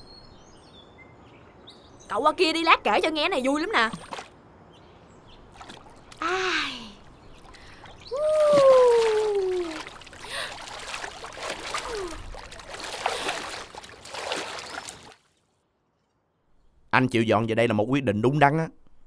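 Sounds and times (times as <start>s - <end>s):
pool water splashing: 3.6s - 4.4s, 5.3s - 15.4s
woman crying out: 8.1s - 10.5s.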